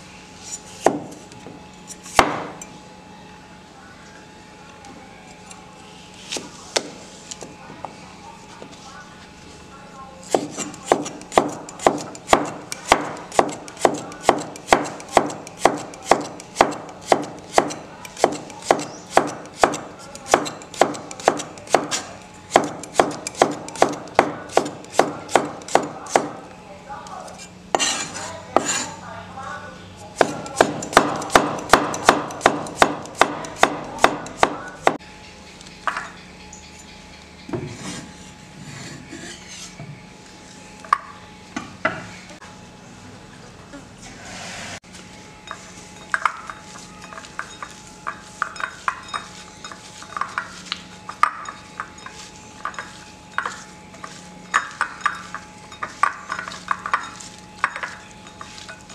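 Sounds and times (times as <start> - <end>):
cleaver chopping on wooden board: 0.8 - 1.1, 2.1 - 2.5, 10.3 - 26.4, 30.2 - 35.0.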